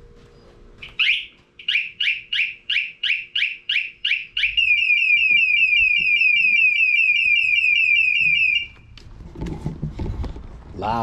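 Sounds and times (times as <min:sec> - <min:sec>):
motorcycle alarm siren: 0:00.8 - 0:08.9.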